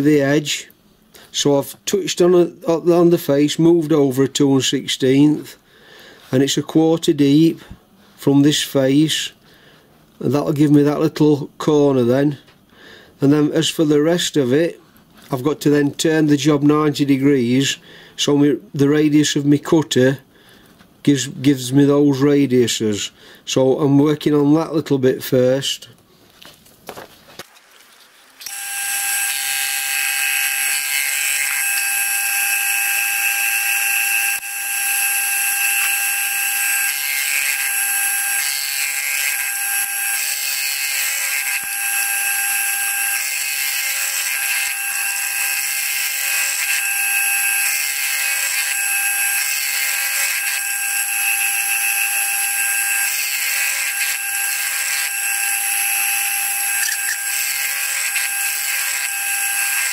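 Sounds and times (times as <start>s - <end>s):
milling machine whine: 28.4s - 59.9s.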